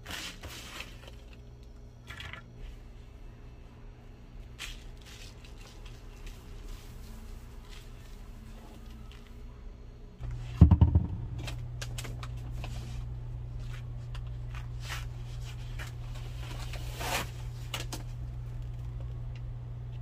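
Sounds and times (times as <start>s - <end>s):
steady low hum: 0.0s - 20.0s
quick knocks: 10.6s - 11.4s.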